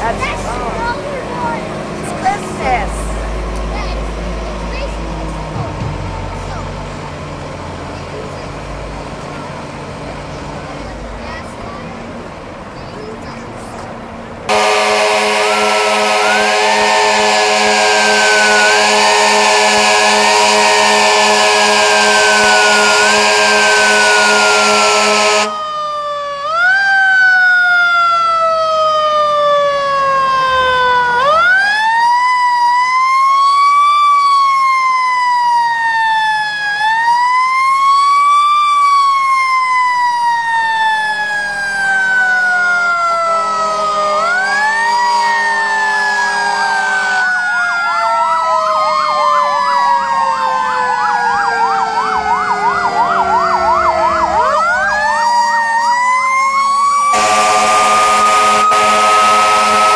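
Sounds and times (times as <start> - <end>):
fire truck sirens wailing: 0.0 - 59.9
loud horn blast: 14.5 - 25.6, 57.1 - 59.9
rapid siren yelp: 14.5 - 59.9.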